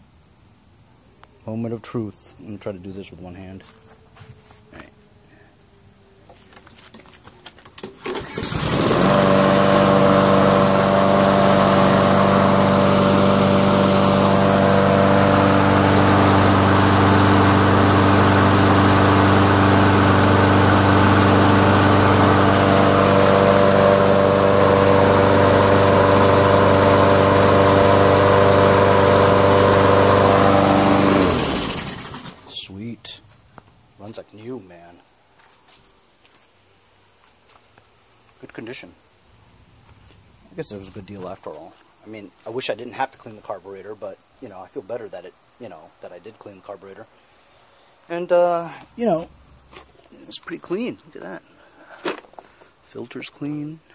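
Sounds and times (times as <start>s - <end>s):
lawn mower engine running: 7.6s - 32.7s.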